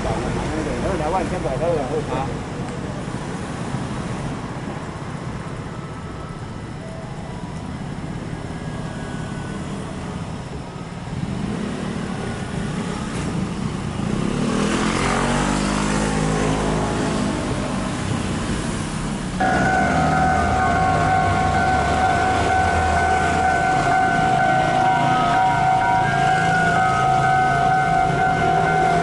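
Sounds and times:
passing vehicle: 0:00.0 - 0:29.0
level crossing warning bell: 0:06.6 - 0:07.9, 0:19.4 - 0:29.0.

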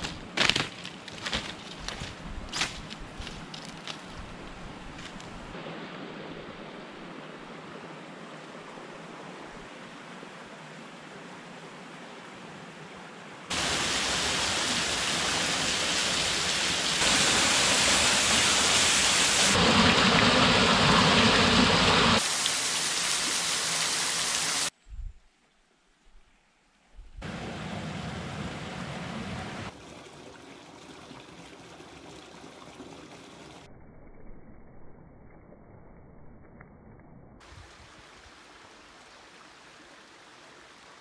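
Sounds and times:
outdoor ambient hiss: 0:00.0 - 0:33.7, 0:37.4 - 0:41.0
waterfall pouring onto rocks: 0:13.5 - 0:24.7.

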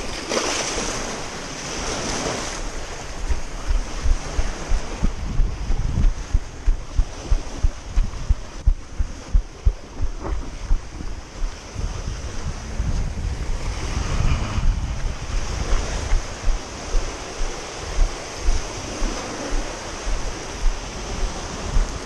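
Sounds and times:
wind buffeting microphone: 0:00.0 - 0:22.0
waves washing up gravel shore: 0:15.1 - 0:22.0.

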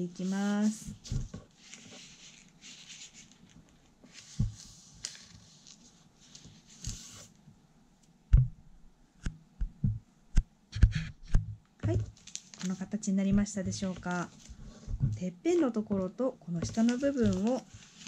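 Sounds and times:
paper rustling and sliding: 0:00.5 - 0:07.4, 0:12.1 - 0:12.8, 0:13.8 - 0:15.0, 0:16.6 - 0:18.0.

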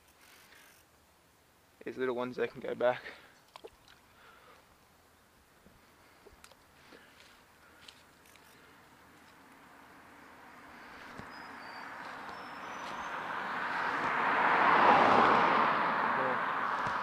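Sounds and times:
car driving past: 0:09.4 - 0:17.0.

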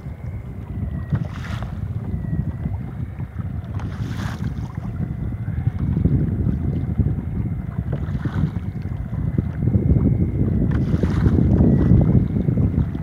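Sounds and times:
faint high whine: 0:00.0 - 0:13.0
wind buffeting microphone: 0:00.0 - 0:13.0.

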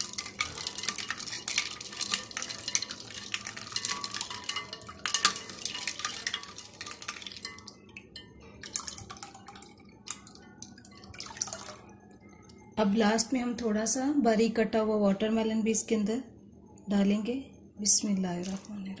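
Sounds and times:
ice cubes clinking: 0:00.0 - 0:10.4
liquid sloshing: 0:00.0 - 0:11.9, 0:18.4 - 0:18.9
drips: 0:00.0 - 0:12.6, 0:18.4 - 0:19.0.

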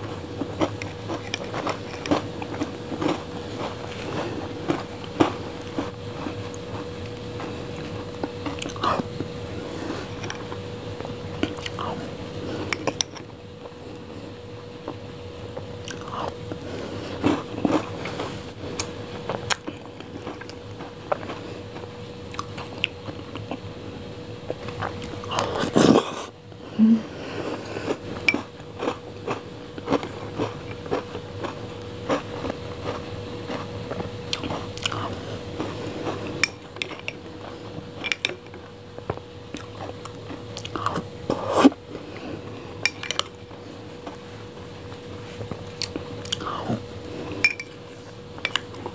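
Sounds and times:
faint steady hum: 0:00.0 - 0:48.9
wet mouth eating sounds: 0:00.5 - 0:09.0, 0:22.3 - 0:23.6, 0:29.8 - 0:37.1, 0:39.5 - 0:42.2, 0:45.7 - 0:47.4.

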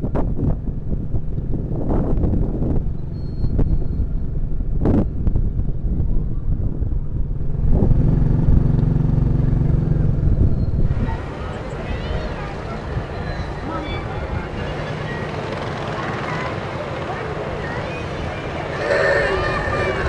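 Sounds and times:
motorcycle engine running: 0:07.0 - 0:10.8
wind rushing: 0:18.1 - 0:20.0.

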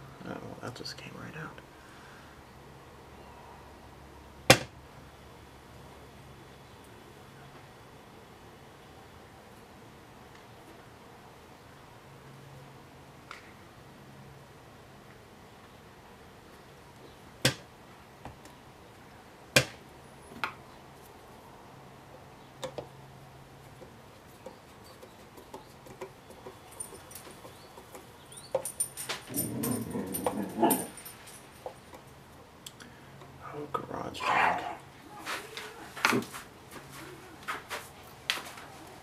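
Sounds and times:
dog scuffling: 0:24.1 - 0:31.8
faint metallic jingle: 0:26.6 - 0:27.6, 0:28.2 - 0:31.8.

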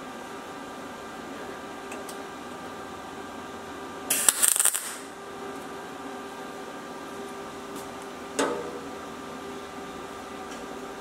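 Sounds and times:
steady hum: 0:00.0 - 0:11.0
welding arc crackling: 0:04.1 - 0:05.1.

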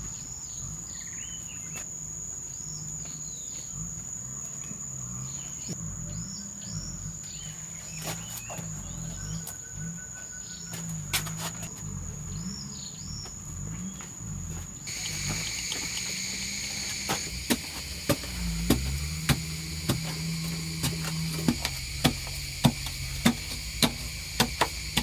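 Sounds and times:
insects chirping: 0:00.0 - 0:25.0
bird call: 0:14.9 - 0:25.0
sharp knocks: 0:17.0 - 0:25.0.

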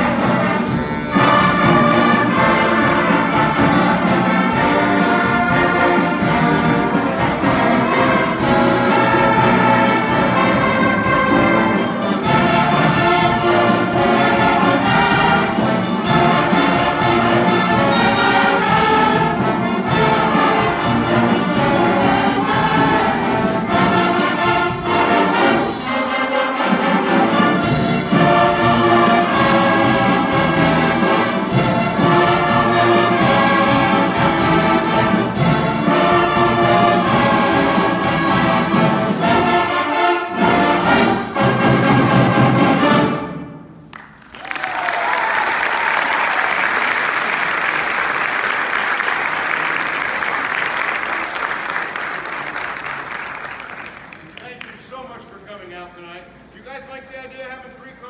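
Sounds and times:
band playing: 0:00.0 - 0:58.0
audience applause: 0:43.9 - 0:54.8.

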